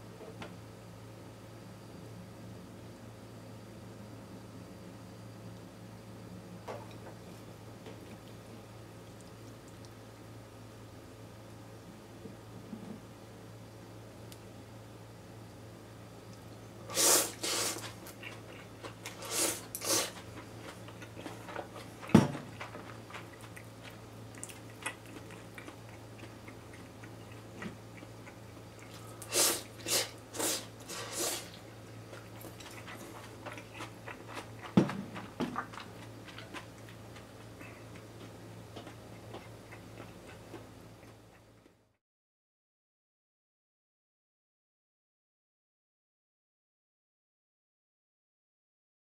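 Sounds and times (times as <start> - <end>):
low steady hum: 0.0 - 42.0
noodles being slurped: 16.9 - 20.3, 28.8 - 31.6.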